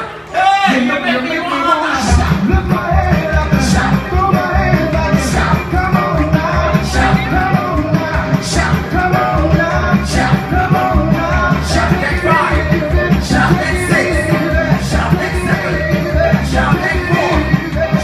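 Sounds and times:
heavy bass beat: 2.0 - 18.0
person singing: 2.0 - 18.0
live rock band playing: 2.1 - 18.0.

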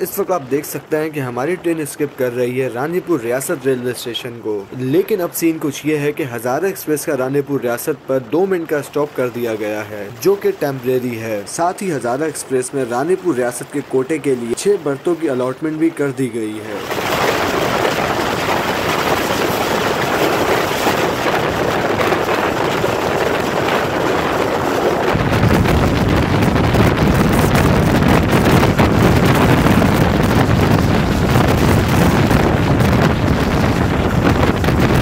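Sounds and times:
wind buffeting microphone: 16.5 - 35.0.

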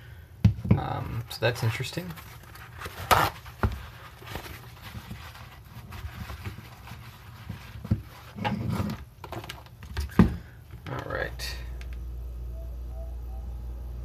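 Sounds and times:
paper towel rustling and rubbing: 1.3 - 9.9.

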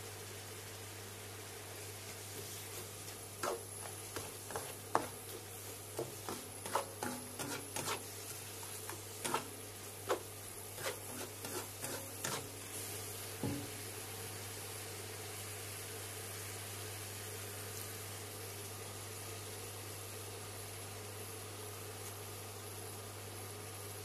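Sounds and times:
spatula scraping a metal wok: 2.7 - 12.9.

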